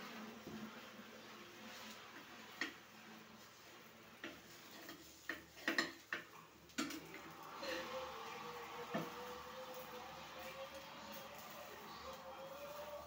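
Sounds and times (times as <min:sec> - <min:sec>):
metal spatula scraping frying pan: 0:04.2 - 0:06.0.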